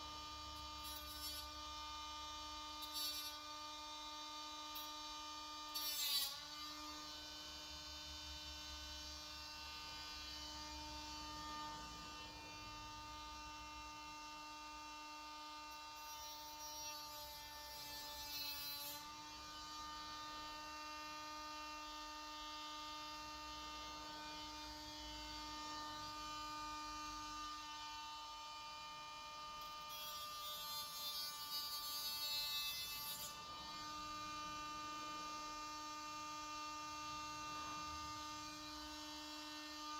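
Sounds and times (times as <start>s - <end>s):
rotary tool whining: 0.6s - 1.7s, 2.7s - 3.8s, 5.7s - 7.1s.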